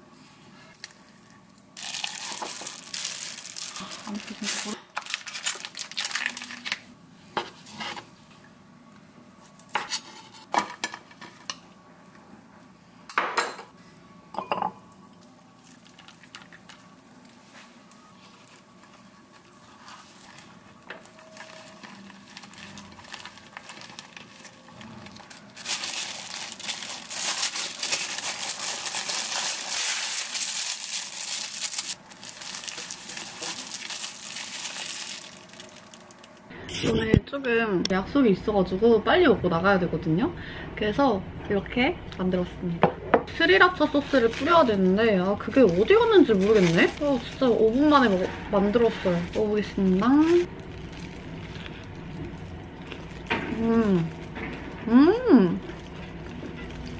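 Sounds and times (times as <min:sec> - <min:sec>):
plastic wrap crinkling: 0:00.7 - 0:07.0, 0:15.6 - 0:36.5, 0:43.7 - 0:56.9
knife cutting through wrap: 0:25.1 - 0:35.8.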